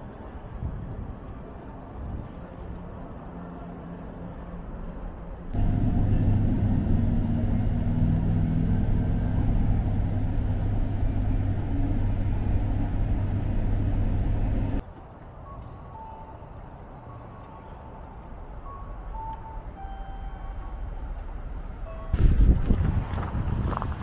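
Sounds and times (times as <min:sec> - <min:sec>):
outdoor background noise: 0:00.0 - 0:24.0
train rumble inside carriage: 0:00.1 - 0:14.8.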